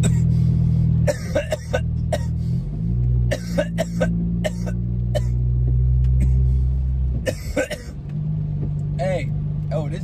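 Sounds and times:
man coughing: 0.0s - 0.3s, 1.1s - 2.4s, 3.3s - 5.4s, 7.3s - 8.0s
car engine hum: 0.0s - 10.0s.

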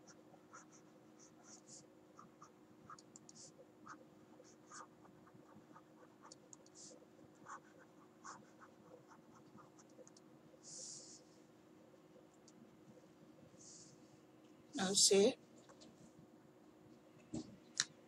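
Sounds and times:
stylus scratching on tablet screen: 0.0s - 11.4s
faint steady hum: 0.0s - 18.0s.

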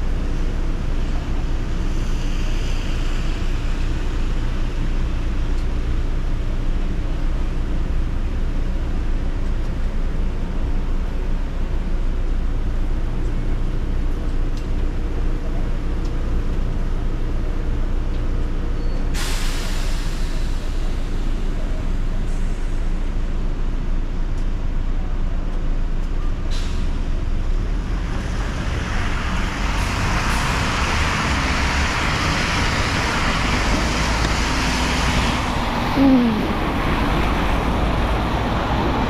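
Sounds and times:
road traffic: 0.0s - 39.0s
tyres hissing on wet pavement: 19.2s - 22.8s, 28.6s - 39.0s.

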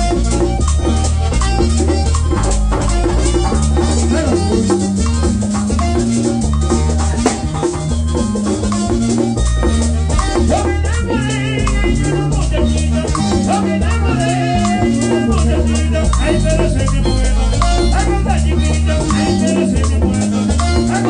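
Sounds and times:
drum beat: 0.0s - 21.0s
fast dance music: 1.4s - 14.0s.

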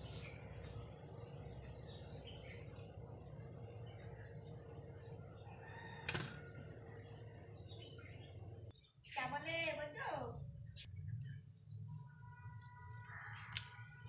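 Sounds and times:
birds chirping faintly: 0.0s - 14.0s.

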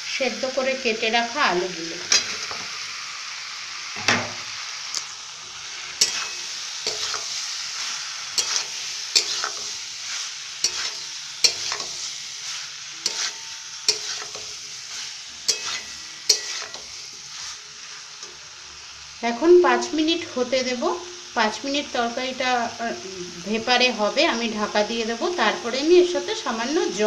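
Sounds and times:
hot oil sizzling: 0.0s - 27.0s
metal spatula scraping a wok: 2.0s - 2.8s, 5.6s - 18.4s.

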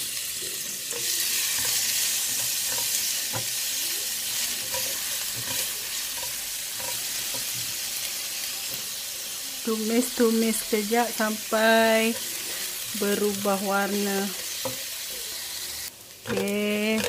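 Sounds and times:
paste sizzling in hot oil: 0.0s - 17.0s
spatula tapping and scraping pan: 0.9s - 3.6s, 4.3s - 7.8s, 14.3s - 15.0s, 16.2s - 17.0s.

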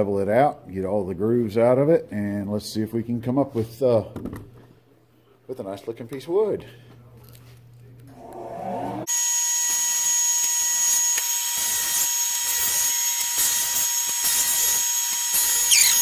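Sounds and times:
short rising hum: 8.1s - 9.1s.

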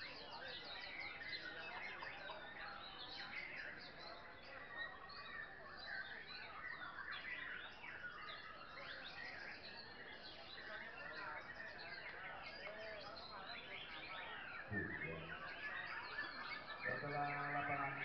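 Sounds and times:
birds singing in chorus: 0.0s - 18.0s.

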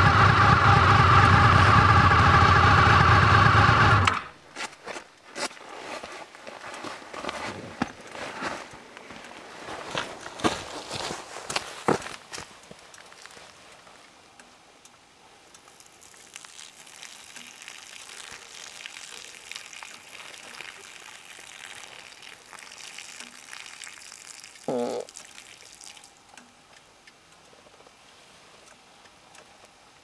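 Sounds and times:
urine splashing on grass: 15.7s - 26.2s.

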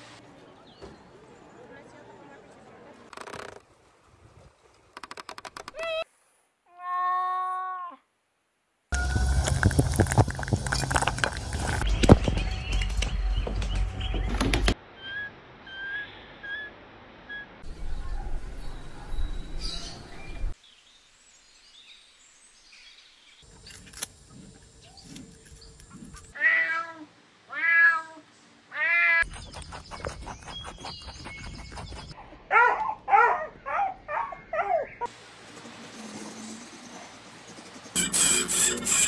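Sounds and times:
cat meowing: 26.4s - 29.2s.

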